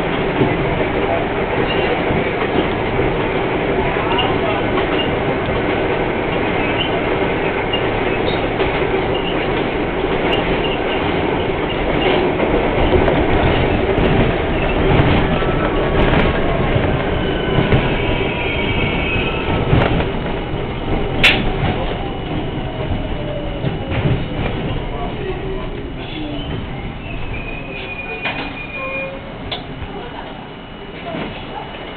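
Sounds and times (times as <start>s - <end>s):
train rumble: 0.0s - 31.9s
wheels clicking over rail joints: 4.0s - 30.4s
wheels squealing: 6.3s - 9.6s, 26.0s - 29.6s.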